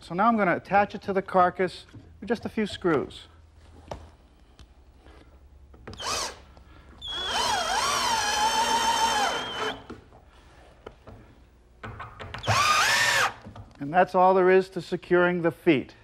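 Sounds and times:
cordless drill whirring: 5.9 - 6.4, 7.0 - 9.9, 12.4 - 13.4.

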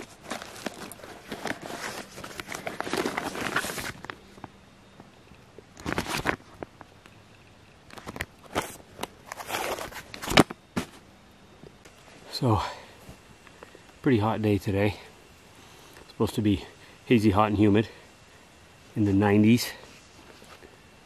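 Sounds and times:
plastic bags crinkling: 0.0 - 4.2.

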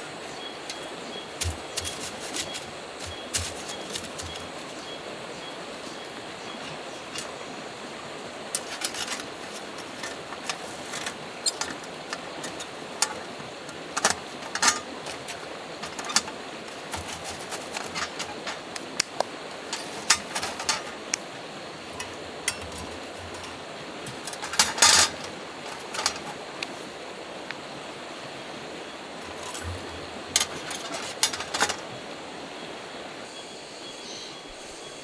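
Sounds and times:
metallic clatter: 1.4 - 4.6, 6.6 - 7.4, 8.5 - 18.8, 19.6 - 21.2, 21.8 - 26.6, 29.2 - 32.0
steel panels clinking and knocking: 1.4 - 4.6, 6.6 - 7.5, 8.5 - 26.7, 29.2 - 32.0.

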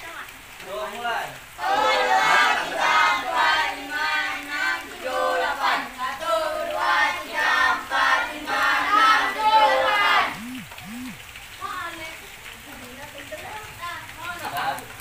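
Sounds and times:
children chanting in unison: 1.6 - 10.4.

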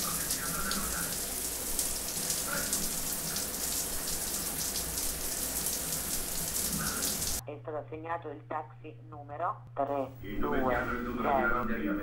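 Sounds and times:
shower spray hissing: 0.0 - 7.4.

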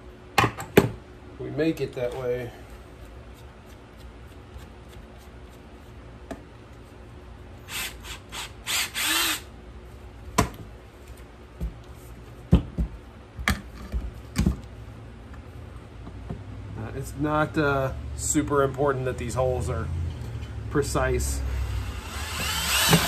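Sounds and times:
cordless drill whirring: 7.7 - 9.5, 21.5 - 23.0.

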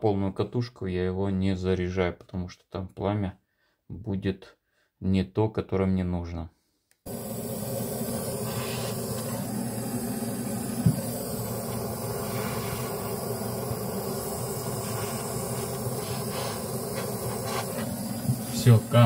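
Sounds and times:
gas torch hissing: 7.1 - 19.0.

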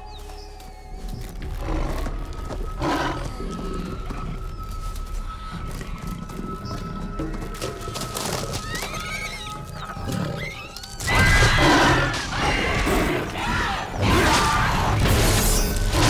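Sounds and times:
creature screeching: 10.4 - 12.8.

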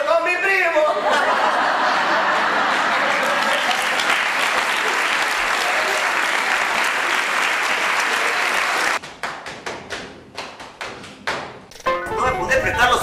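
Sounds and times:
audience applauding: 1.6 - 9.5.

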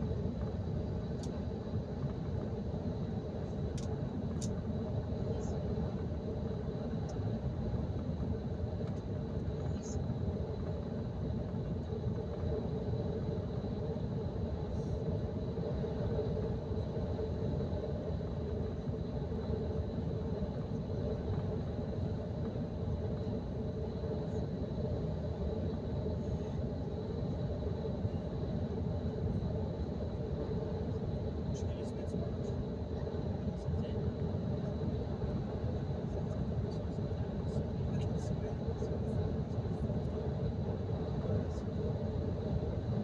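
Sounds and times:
faint high whine: 0.0 - 43.0.

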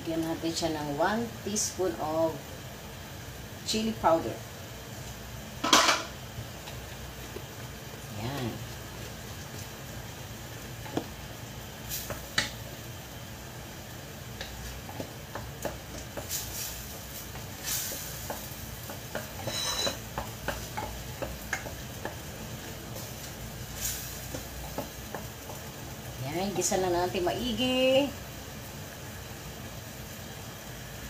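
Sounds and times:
light sizzle: 0.0 - 31.0
wooden spoon knocking and scraping pot: 14.3 - 16.4, 17.2 - 23.4, 24.2 - 25.8.

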